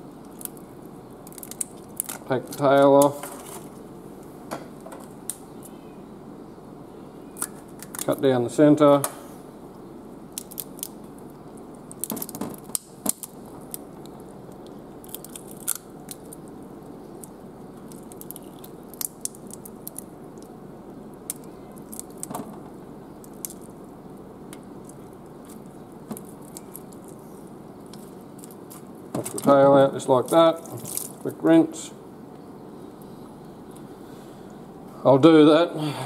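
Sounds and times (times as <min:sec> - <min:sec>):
steady background noise: 0:00.0 - 0:36.0
shell cracking: 0:00.2 - 0:03.1, 0:07.3 - 0:08.2, 0:10.3 - 0:27.2, 0:27.8 - 0:29.5, 0:30.3 - 0:31.2.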